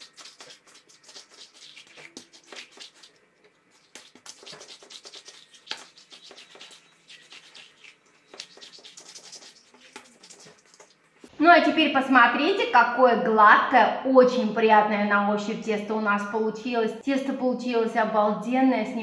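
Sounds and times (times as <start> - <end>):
hands kneading dough on mat: 0.0 - 11.3.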